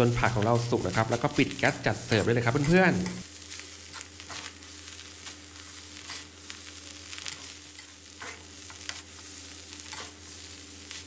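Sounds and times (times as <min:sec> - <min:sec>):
metal spatula scraping a wok: 0:00.0 - 0:04.6, 0:06.0 - 0:06.3, 0:09.8 - 0:11.0
food sizzling in a wok: 0:00.0 - 0:11.0.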